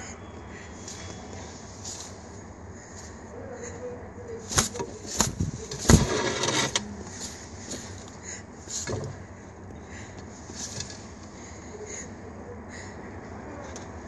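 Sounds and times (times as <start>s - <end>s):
pigeon wing slaps: 4.5s - 6.1s
pigeon wings flapping: 4.5s - 6.1s.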